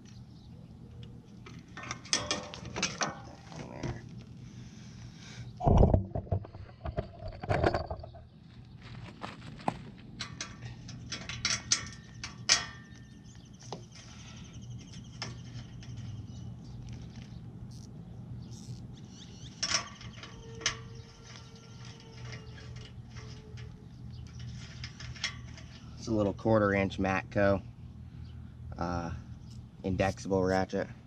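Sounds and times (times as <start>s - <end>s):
metal tool clinks and knocks: 6.7s - 8.2s.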